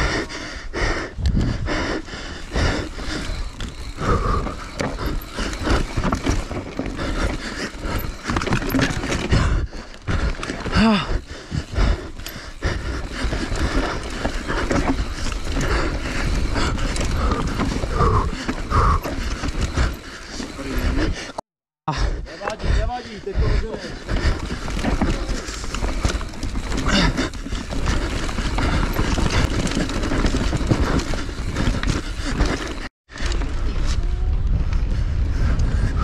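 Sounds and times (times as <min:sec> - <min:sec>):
wind rushing over microphone: 0:01.1 - 0:08.3, 0:33.1 - 0:36.0
bike rattling over bumps: 0:01.3 - 0:21.4, 0:22.3 - 0:36.0.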